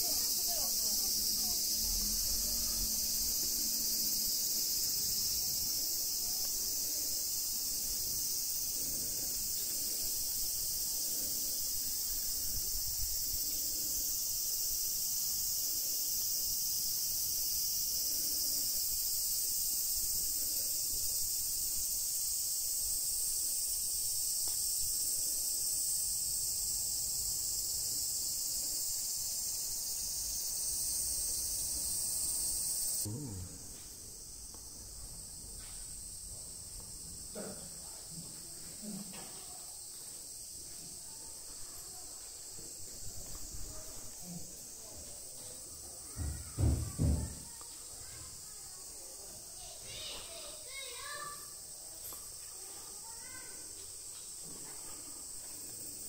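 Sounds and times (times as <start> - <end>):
insects chirring: 0.0 - 56.0.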